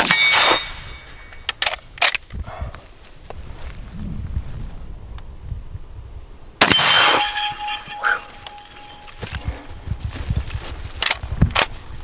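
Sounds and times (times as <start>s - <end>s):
rifle shot: 6.6s - 8.2s
ringing tone: 6.7s - 9.6s.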